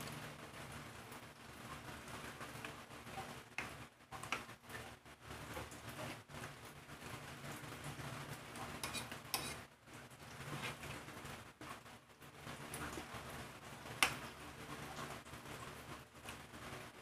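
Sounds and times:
fork scraping ceramic plate: 8.8 - 9.6.

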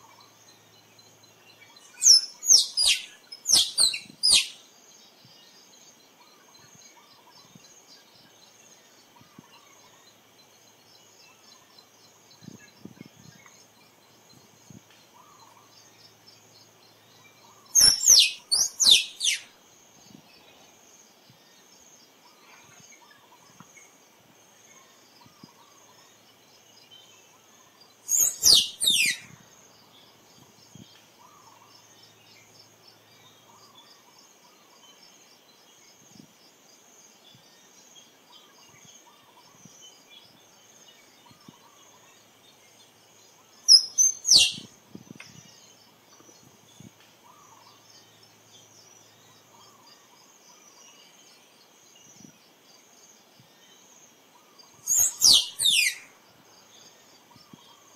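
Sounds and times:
high insect hum: 0.0 - 57.9
squirrel chirping: 2.0 - 4.6, 17.7 - 19.5, 28.1 - 29.4, 43.7 - 44.7, 54.9 - 56.1.

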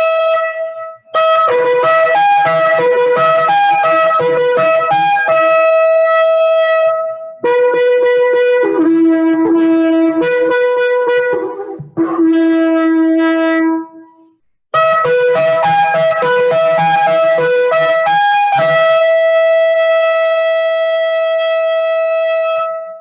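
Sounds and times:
shofar blasts: 0.0 - 14.2, 14.8 - 23.0.

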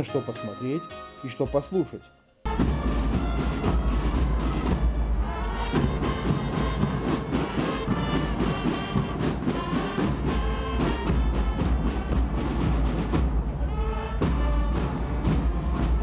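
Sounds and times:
brass band horns: 2.5 - 16.0
steady drum beat: 2.5 - 16.0.

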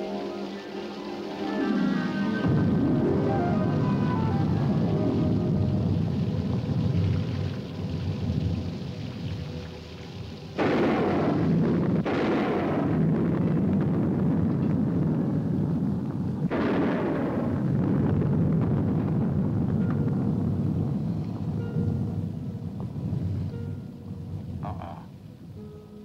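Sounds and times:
rain and wind rumble: 0.0 - 26.0
sharp thunderclaps: 2.4 - 9.4, 10.6 - 23.4.

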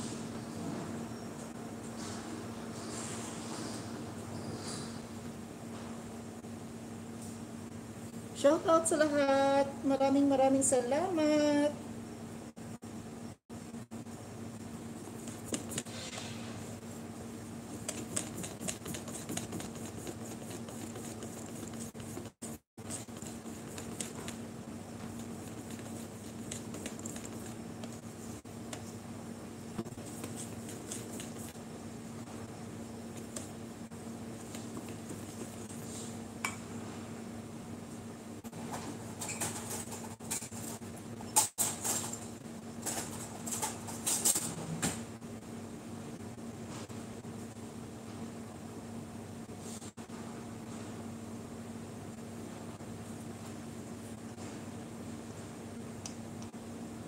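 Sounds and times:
steady low hum: 0.0 - 57.0
whisk beating batter in bowl: 15.0 - 15.9, 17.6 - 28.8, 29.9 - 31.6, 34.4 - 35.8.

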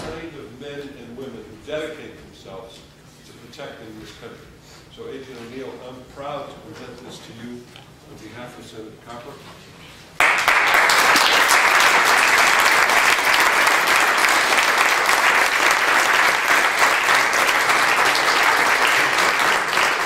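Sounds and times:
crowd applauding: 10.2 - 20.0.

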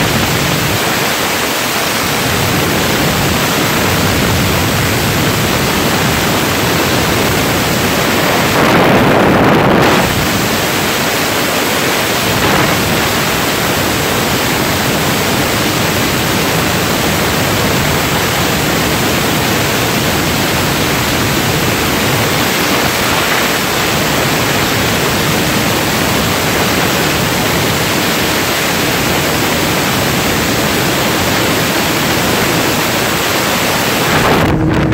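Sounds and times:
wind rushing over microphone: 0.0 - 34.9.

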